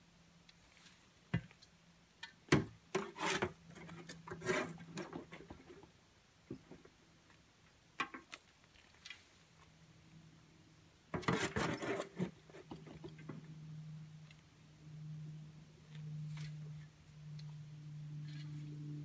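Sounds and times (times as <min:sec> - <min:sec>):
garden tool scraping soil: 0:02.9 - 0:05.8, 0:11.2 - 0:13.0.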